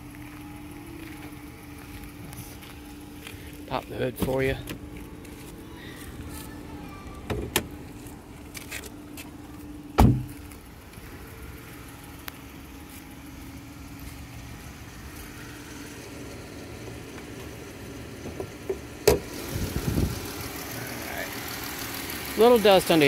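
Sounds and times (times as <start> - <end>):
car engine idling: 0.0 - 23.0
car door shutting: 7.2 - 7.8, 10.0 - 10.5, 18.2 - 20.1.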